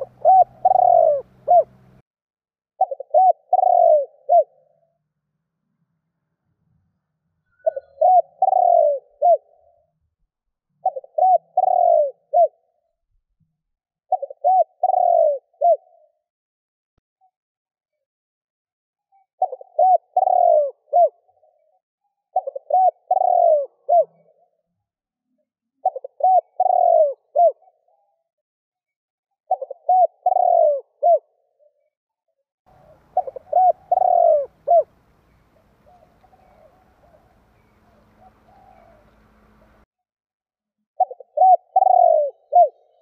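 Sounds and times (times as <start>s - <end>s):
dove cooing: 0.0s - 2.0s, 2.8s - 4.8s, 7.6s - 9.8s, 10.8s - 12.7s, 14.1s - 16.0s, 19.4s - 21.3s, 22.4s - 24.5s, 25.8s - 27.8s, 29.5s - 31.3s, 32.7s - 39.8s, 41.0s - 43.0s
faint low hum: 32.7s - 39.9s.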